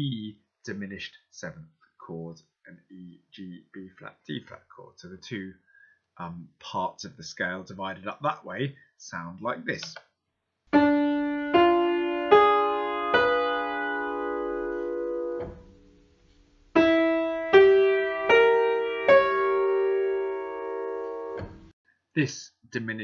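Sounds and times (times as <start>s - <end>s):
piano chords: 10.7s - 21.7s.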